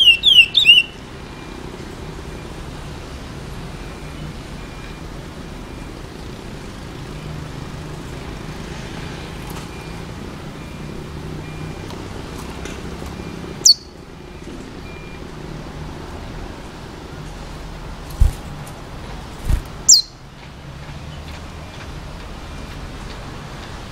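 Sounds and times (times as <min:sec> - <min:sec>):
bird chirp sliding downward: 0:00.0 - 0:01.0, 0:13.6 - 0:14.0, 0:19.8 - 0:20.2
city traffic hum: 0:00.0 - 0:23.9.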